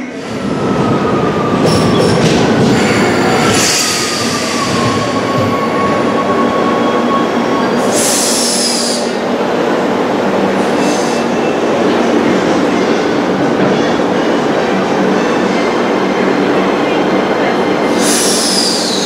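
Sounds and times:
train rolling rumble and whine: 0.0 - 19.0
high-pitched brake squeal: 17.9 - 19.0.

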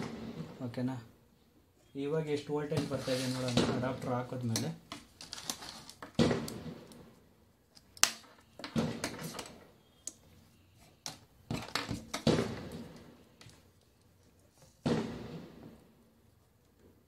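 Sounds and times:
plastic packaging clicks and knocks: 2.8 - 7.0.

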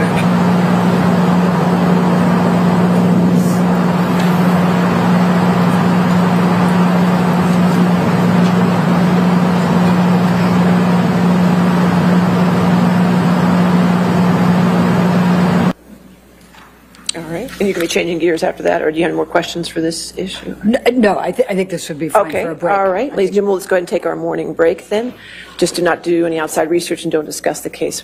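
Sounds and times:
airplane cabin drone: 0.0 - 15.8
low aircraft hum: 0.0 - 15.8.

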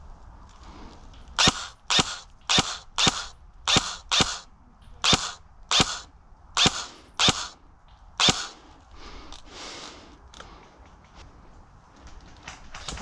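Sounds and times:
airsoft rifle shots: 1.4 - 7.6, 8.2 - 8.6.

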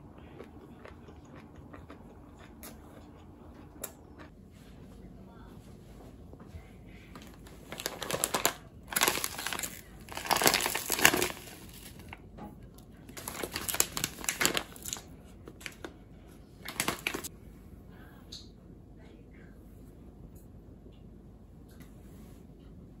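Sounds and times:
plastic pouches crinkling: 7.1 - 12.2, 13.2 - 16.0, 16.6 - 17.3.

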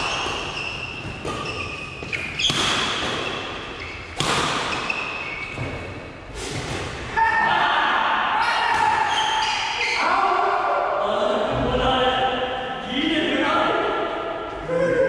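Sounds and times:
shoes squeaking on wooden court: 0.0 - 6.9, 9.0 - 10.0
racket hitting shuttlecock: 0.0 - 7.1.

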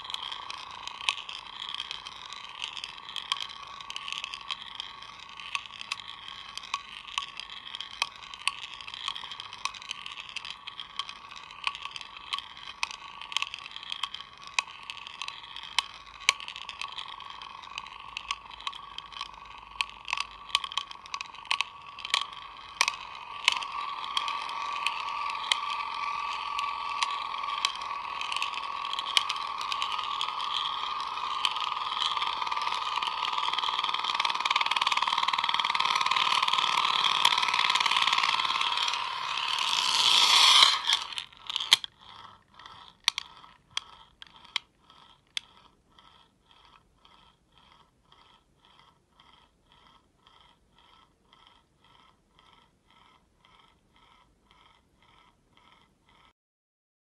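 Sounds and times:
marble clicking against metal: 0.0 - 56.3
spinning top ringing hum: 0.0 - 56.3.

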